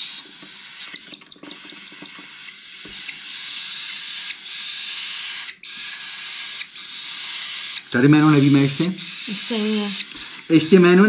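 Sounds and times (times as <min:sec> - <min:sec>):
cockatiel chick raspy hiss: 0:02.2 - 0:11.0.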